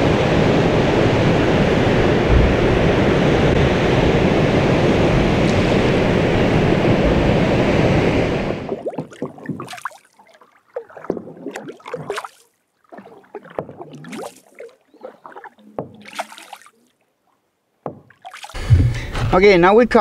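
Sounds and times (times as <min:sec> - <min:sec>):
paddle splashing and gurgling water: 0:05.4 - 0:19.1.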